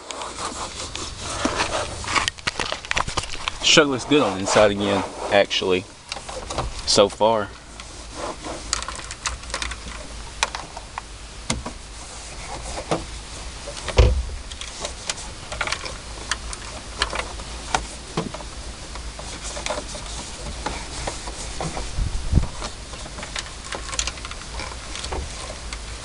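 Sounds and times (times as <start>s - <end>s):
clicks and knocks of handling: 8.7s - 11.8s, 13.7s - 21.9s, 22.5s - 25.9s
low rumble: 13.3s - 14.7s
heavy thump: 13.9s - 14.5s.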